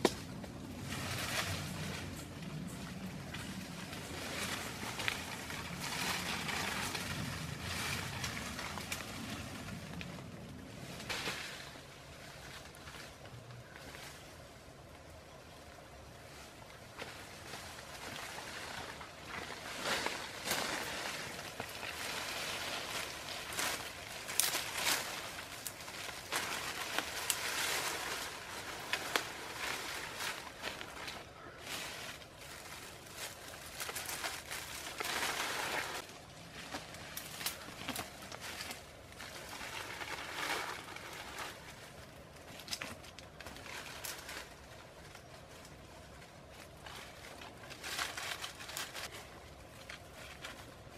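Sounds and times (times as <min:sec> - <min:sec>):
leafy branches rustling: 0:00.0 - 0:50.9
twigs cracking: 0:16.9 - 0:45.8.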